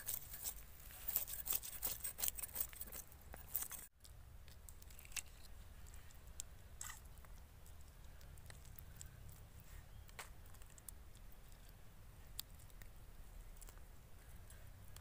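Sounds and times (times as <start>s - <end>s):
fish scales scraped on blade: 0.0s - 3.9s.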